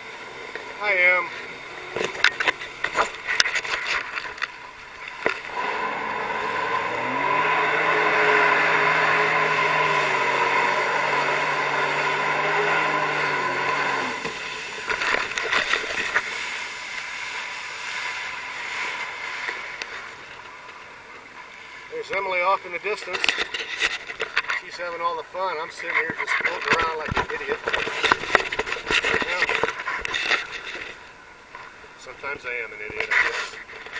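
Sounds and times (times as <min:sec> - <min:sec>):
jet ski engine running: 0:00.0 - 0:20.9
water rushing and splashing: 0:00.0 - 0:33.9.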